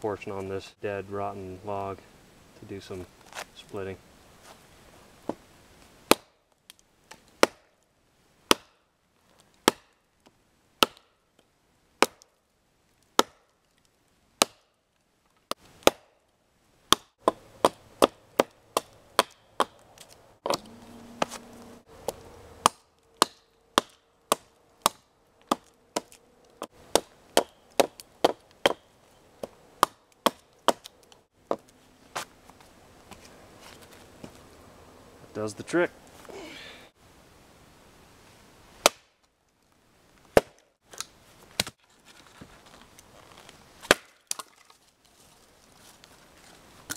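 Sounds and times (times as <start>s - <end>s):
axe chopping into rotten log: 6.1s - 6.3s, 7.4s - 7.7s, 8.5s - 8.8s, 14.4s - 14.6s, 15.8s - 16.1s, 20.4s - 21.4s, 22.1s - 26.2s, 38.8s - 39.1s, 43.8s - 44.6s.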